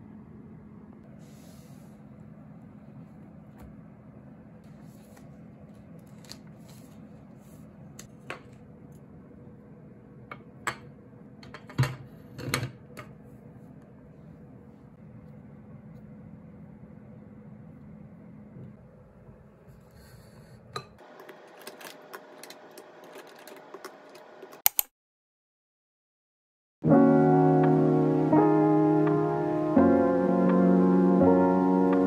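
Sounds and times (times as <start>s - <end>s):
low room hum: 0.0s - 24.6s.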